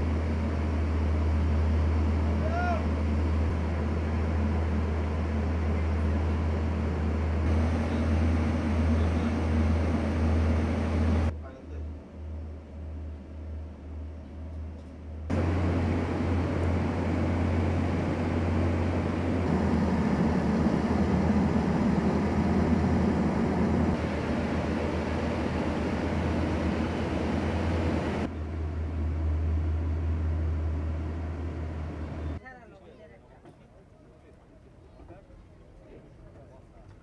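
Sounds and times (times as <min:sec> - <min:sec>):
drilling rig machinery running: 0:00.0 - 0:11.3, 0:15.3 - 0:32.4.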